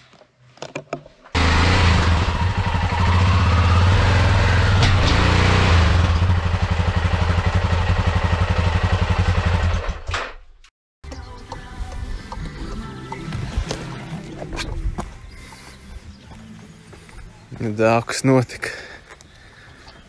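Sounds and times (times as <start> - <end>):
motorcycle engine running: 1.4 - 10.1.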